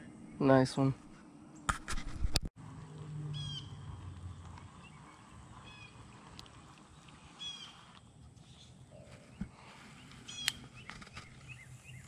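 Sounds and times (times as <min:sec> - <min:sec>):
low hum: 0:01.0 - 0:10.6
bird calling: 0:03.3 - 0:12.0.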